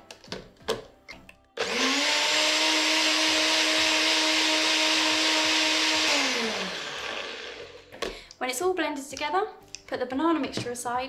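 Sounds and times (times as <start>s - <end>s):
blender motor whirring: 1.6s - 7.9s.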